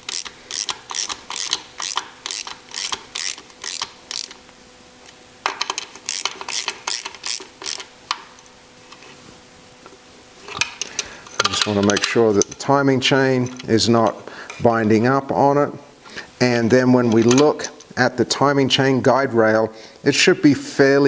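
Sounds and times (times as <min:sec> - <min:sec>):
hand ratchet clicking: 0:00.0 - 0:04.4, 0:05.5 - 0:08.2.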